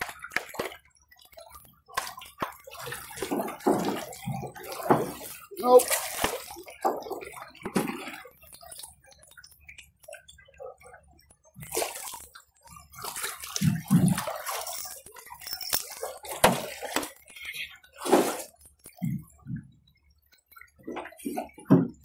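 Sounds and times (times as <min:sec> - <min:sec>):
water sloshing around a canoe: 0:00.0 - 0:22.0.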